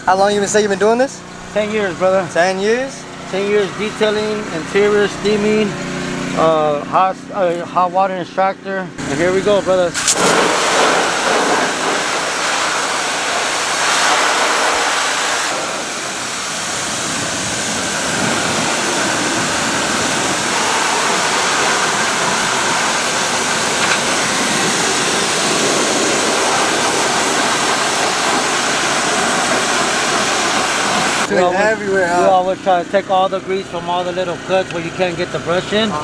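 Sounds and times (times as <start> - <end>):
pressure washer jet hissing: 9.9 - 31.3.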